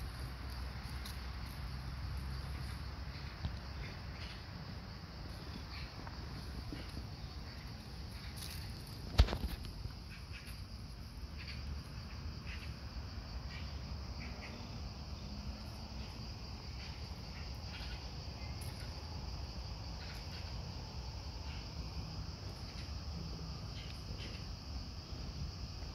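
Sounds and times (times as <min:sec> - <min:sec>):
light ticks and rustles: 0:00.0 - 0:04.4, 0:05.2 - 0:12.7, 0:15.6 - 0:20.6, 0:22.3 - 0:24.7
insects droning: 0:00.0 - 0:25.9.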